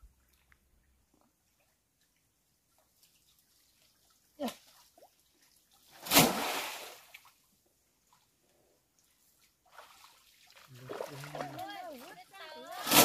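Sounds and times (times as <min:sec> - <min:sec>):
loud splash in water: 0:06.0 - 0:07.1.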